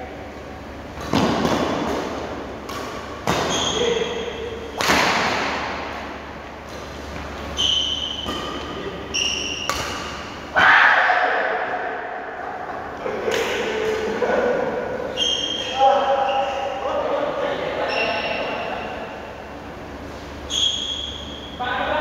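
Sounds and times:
rackets striking shuttlecock: 0.9 - 10.5
shoes squeaking on court floor: 2.7 - 4.7, 5.9 - 10.4, 15.1 - 16.8, 17.8 - 19.0, 20.0 - 21.6.

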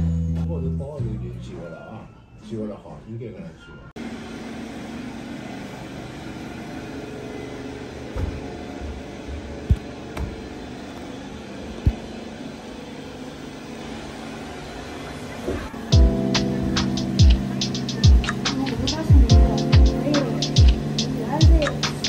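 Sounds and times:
low mechanical hum: 3.6 - 22.0
short dull thumps: 9.6 - 10.4.

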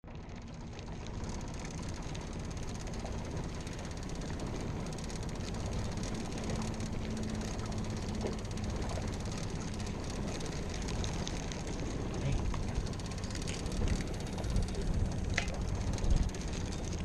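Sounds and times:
outboard motor running: 0.0 - 17.0
wind noise on microphone: 13.5 - 17.0.

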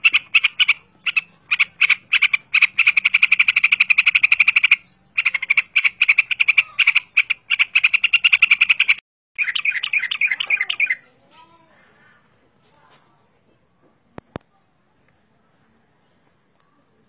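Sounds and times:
bird warbling: 0.0 - 11.2
bird singing rapid notes: 0.0 - 11.3.

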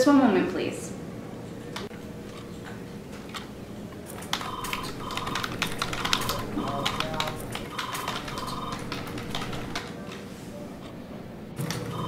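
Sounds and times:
fast keyboard typing: 4.1 - 10.0, 11.6 - 12.0.

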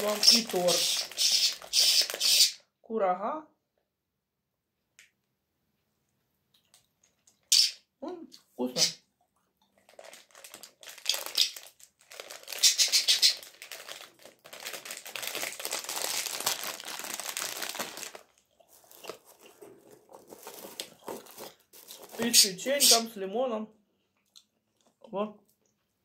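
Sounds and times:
plastic bag crinkling: 0.0 - 2.6, 9.8 - 23.0.

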